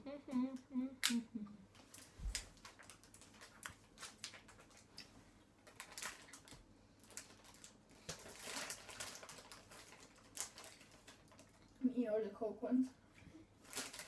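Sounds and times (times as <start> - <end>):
plastic packet crinkling: 1.8 - 11.7, 13.6 - 14.0.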